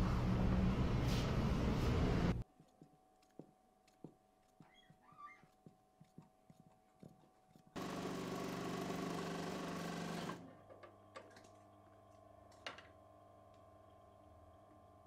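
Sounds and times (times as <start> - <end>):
sewing machine stitching: 7.8 - 10.5.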